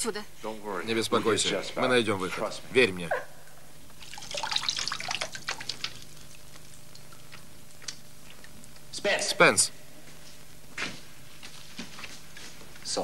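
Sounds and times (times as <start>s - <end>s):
water splashing and dripping: 4.0s - 8.6s.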